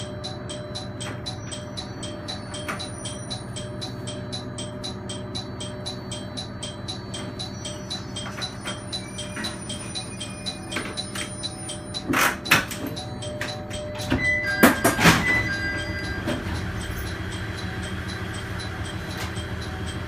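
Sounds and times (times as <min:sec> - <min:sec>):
diesel railcar engine idling: 0:00.0 - 0:20.0
even ticking: 0:00.0 - 0:20.0
steady beeping tones: 0:00.0 - 0:20.0.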